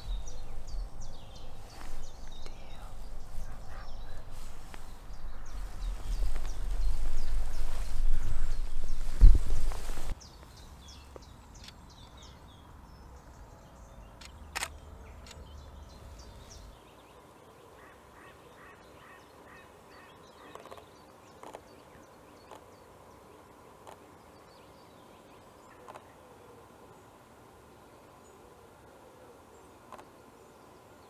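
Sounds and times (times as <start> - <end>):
low rumble: 0.0 - 10.1
short repeated bird calls: 0.0 - 10.2
bird chirps: 0.0 - 16.9.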